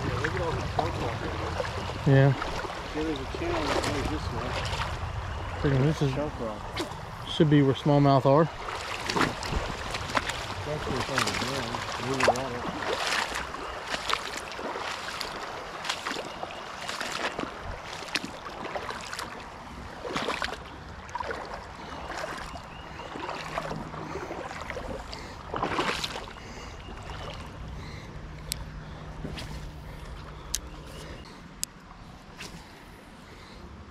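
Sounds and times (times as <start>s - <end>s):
legs wading through water: 0.0s - 33.7s
low steady hum: 0.0s - 33.9s.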